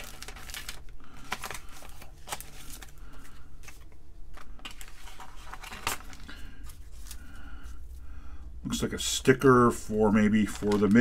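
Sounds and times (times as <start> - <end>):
plastic bags crinkling: 0.0 - 7.4, 10.1 - 11.0.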